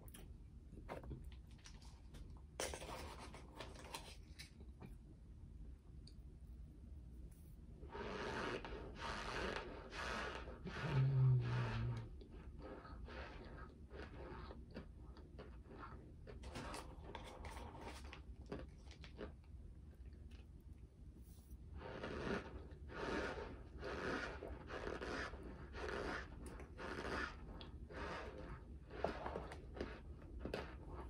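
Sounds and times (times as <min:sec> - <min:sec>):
person crunching chews: 0:13.4 - 0:19.4.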